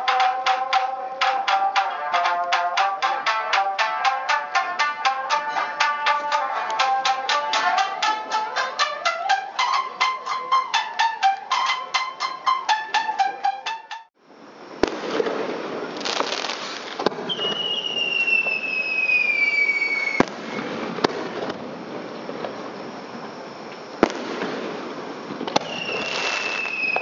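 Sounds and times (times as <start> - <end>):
plucked shamisen music: 0.0 - 14.1
firework crackling hiss: 14.5 - 27.0
falling firework whistle: 14.8 - 21.1, 25.4 - 27.0
firework shell bursts: 24.0 - 27.0.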